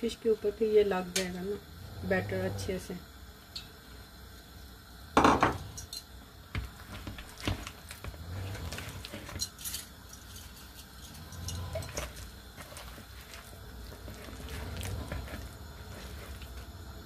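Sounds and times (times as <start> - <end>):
hands mixing fish in batter: 6.5 - 17.0.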